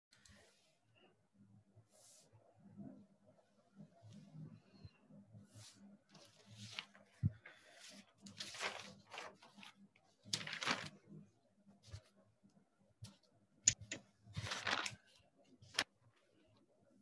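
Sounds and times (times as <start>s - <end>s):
paper rustling: 6.2s - 11.0s, 13.1s - 15.9s.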